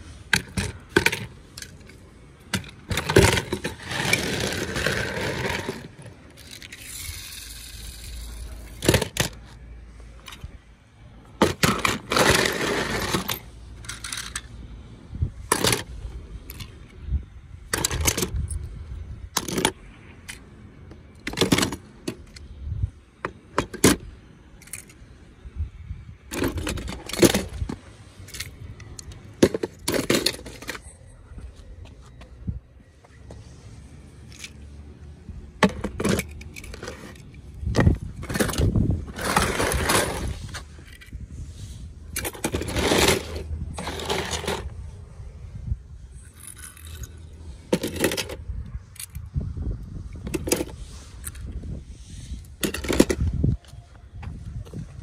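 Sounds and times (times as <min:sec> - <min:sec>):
toy cars clicking and clattering: 0:00.2 - 0:09.6, 0:11.4 - 0:14.6, 0:15.5 - 0:17.0, 0:17.7 - 0:18.7, 0:19.3 - 0:20.5, 0:21.1 - 0:22.6, 0:23.5 - 0:25.0, 0:26.3 - 0:31.0, 0:34.2 - 0:34.6, 0:35.6 - 0:41.2, 0:42.1 - 0:44.8, 0:46.1 - 0:49.4, 0:50.1 - 0:51.6, 0:52.3 - 0:53.5.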